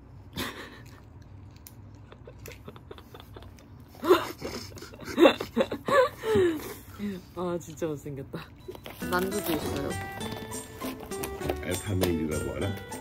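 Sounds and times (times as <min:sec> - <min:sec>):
chewing: 0:00.5 - 0:04.0
woman laughing loudly: 0:02.1 - 0:06.6.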